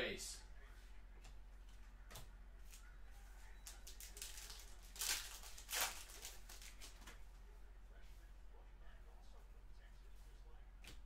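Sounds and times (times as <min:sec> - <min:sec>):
foil card wrappers crinkling: 0:03.6 - 0:07.1.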